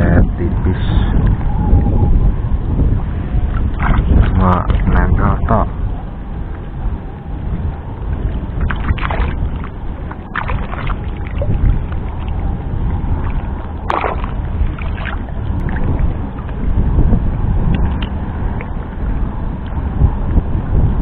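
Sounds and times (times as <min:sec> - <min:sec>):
steady low rumble: 0:00.0 - 0:21.0
short water splashes: 0:03.5 - 0:05.0, 0:08.2 - 0:12.4, 0:13.1 - 0:16.6
water sloshing around wader: 0:03.5 - 0:05.0, 0:08.0 - 0:16.7.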